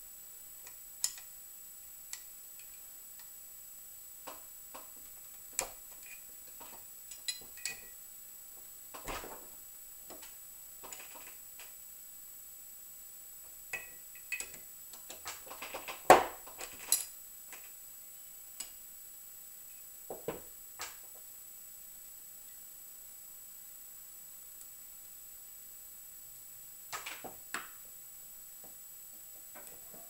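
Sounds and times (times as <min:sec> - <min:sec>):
small parts clicking on table: 0:00.6 - 0:01.3.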